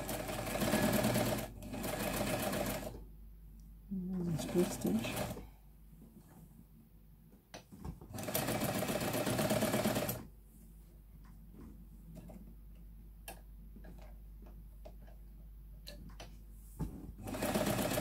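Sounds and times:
sewing machine stitching: 0:00.0 - 0:03.0, 0:08.1 - 0:10.2, 0:17.2 - 0:18.0.

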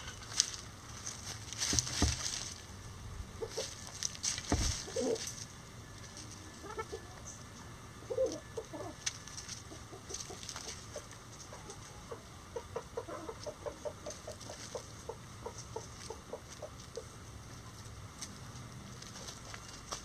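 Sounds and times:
hen pecking corn knocks: 0:00.0 - 0:02.6, 0:03.4 - 0:05.4
scratching in dry leaves: 0:00.0 - 0:07.0, 0:08.2 - 0:11.9, 0:13.0 - 0:20.0
chickens clucking softly: 0:09.6 - 0:17.8.

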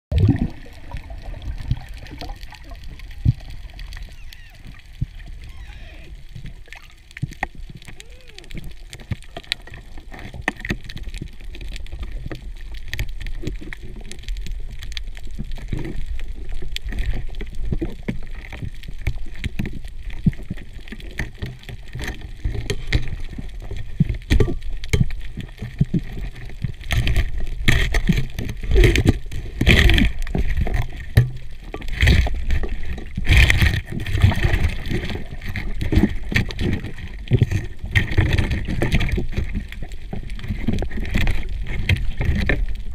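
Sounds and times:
low underwater rumble: 0:00.1 - 0:42.9
underwater clicks and knocks: 0:06.2 - 0:42.9.

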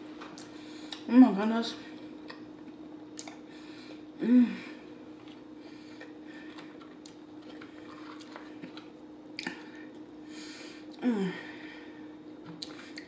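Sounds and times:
chewing food: 0:05.2 - 0:10.0, 0:12.4 - 0:13.0
person humming: 0:11.0 - 0:11.6.

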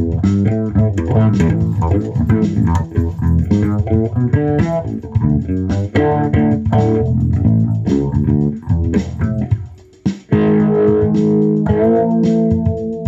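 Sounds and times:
electric bass guitar plucked: 0:00.0 - 0:13.0.

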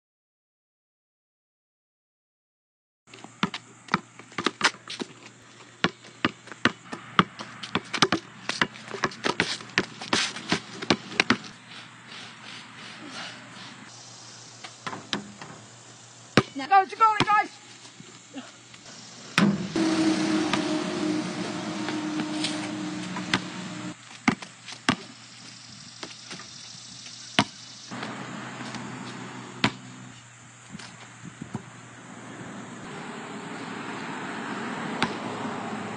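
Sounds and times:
basketball bouncing on pavement: 0:03.1 - 0:05.2, 0:05.8 - 0:11.6, 0:24.2 - 0:25.1, 0:27.4 - 0:29.9, 0:35.0 - 0:35.4
steady hiss: 0:11.7 - 0:33.1.

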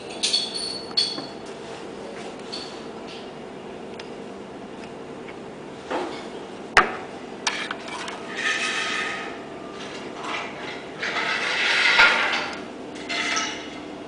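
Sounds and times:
steady machine hum: 0:00.0 - 0:14.0
objects rattling and rubbing: 0:07.5 - 0:13.8.

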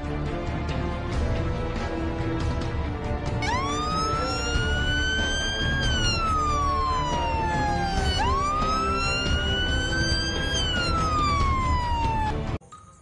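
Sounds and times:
police siren wailing: 0:03.4 - 0:12.6.

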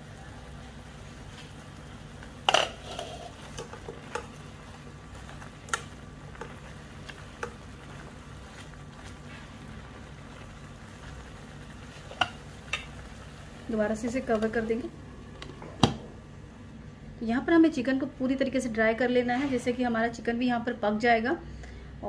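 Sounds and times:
steady low hum: 0:00.0 - 0:19.2.

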